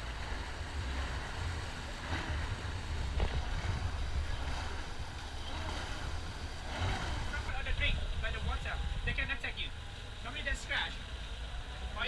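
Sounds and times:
wind rumble on microphone: 0.0s - 10.2s
open-water ambience: 0.0s - 12.0s.

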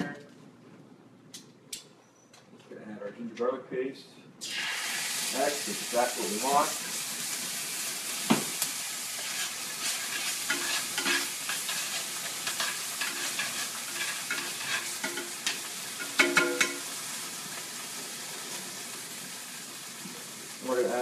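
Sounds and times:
paste sizzling in hot oil: 4.4s - 21.0s
utensil scraping a pan: 9.2s - 16.8s.

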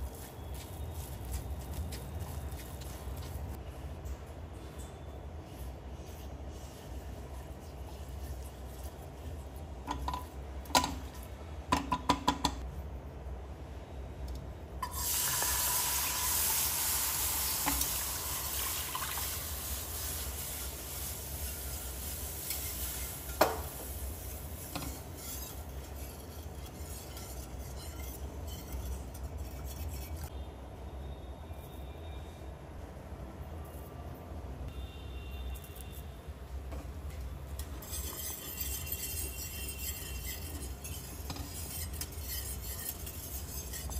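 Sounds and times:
spatula stirring in a pan: 4.7s - 11.3s, 15.0s - 30.3s, 37.0s - 43.9s
milk hissing in a hot pan: 14.8s - 26.3s
wire whisk whisking: 17.4s - 30.3s, 37.5s - 43.9s.

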